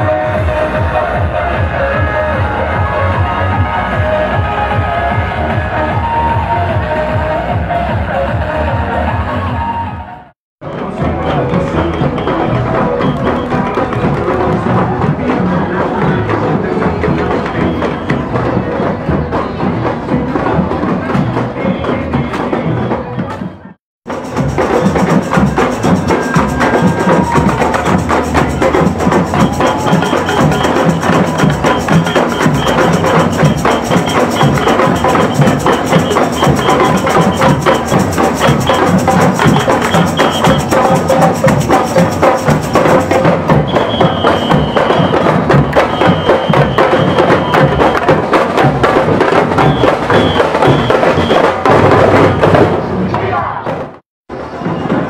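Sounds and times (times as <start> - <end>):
marching drum band: 10.6 - 55.0
high piping notes: 24.1 - 43.0.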